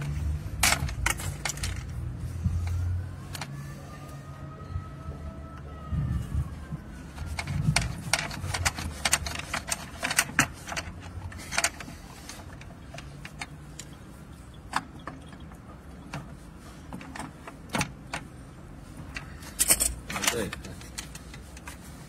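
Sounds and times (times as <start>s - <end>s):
plastic and metal clicks and knocks: 7.2s - 14.0s.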